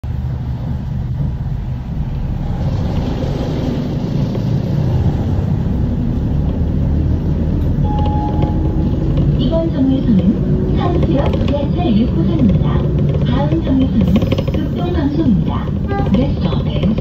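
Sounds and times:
bus road noise rumble: 0.0s - 17.0s
faint engine hum: 0.1s - 17.0s.

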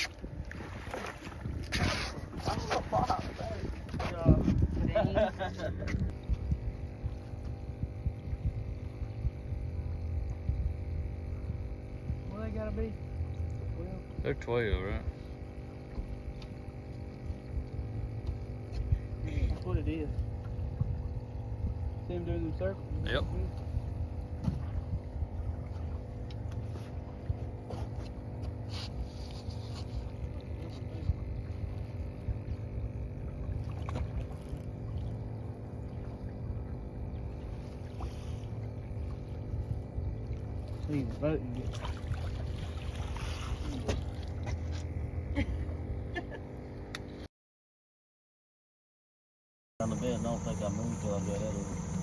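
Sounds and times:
wind and water rumble: 0.0s - 47.2s
faint steady hum: 0.0s - 47.3s, 49.8s - 52.0s
light knocks on boat: 24.3s - 24.8s
fish splashing in a net: 41.6s - 44.2s.

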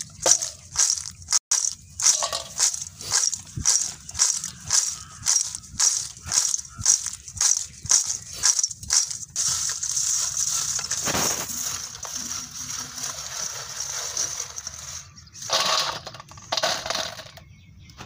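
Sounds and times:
chips rustling in metal colander: 0.0s - 17.4s
chips spilling onto steel plate: 0.2s - 4.3s, 9.0s - 17.3s.

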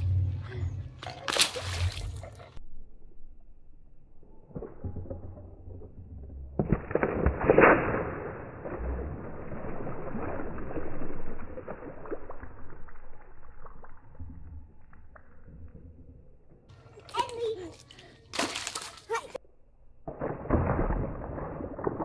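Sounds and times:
slowed water balloon splash: 1.0s - 2.4s, 4.5s - 15.5s, 18.3s - 19.4s, 20.0s - 22.0s.

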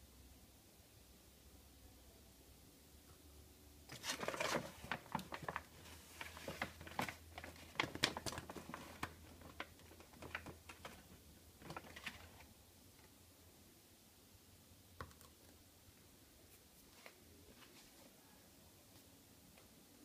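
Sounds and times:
powder rustling in plastic scoop: 3.9s - 12.5s.

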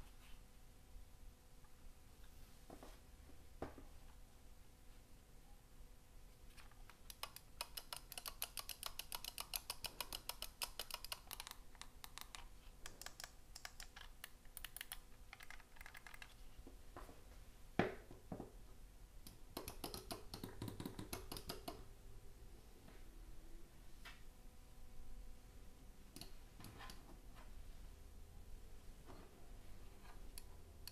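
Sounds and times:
mouse buttons clicking: 6.9s - 16.4s.

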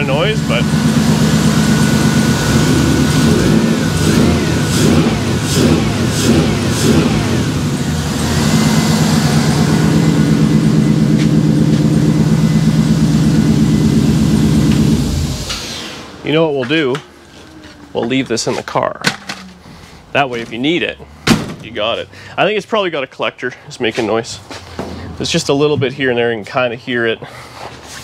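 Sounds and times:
car engine revving and idling: 0.0s - 22.4s
exhaust ticking: 0.0s - 26.7s.

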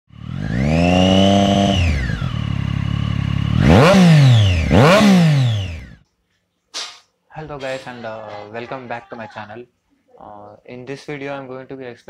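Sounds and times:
motorcycle engine revving: 0.1s - 6.0s.

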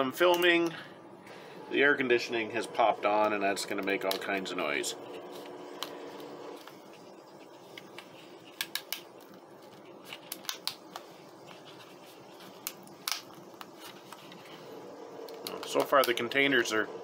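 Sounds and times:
air conditioner hum: 0.0s - 17.0s.

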